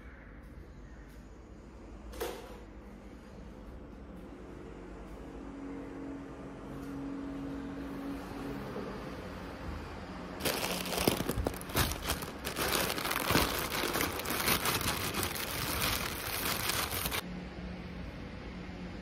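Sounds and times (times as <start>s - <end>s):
plastic bag crinkling: 10.4s - 17.2s.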